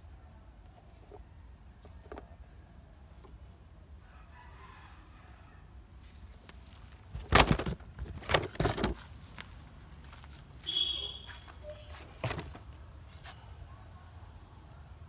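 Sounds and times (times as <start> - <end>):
plastic toys clattering together: 7.1 - 9.0.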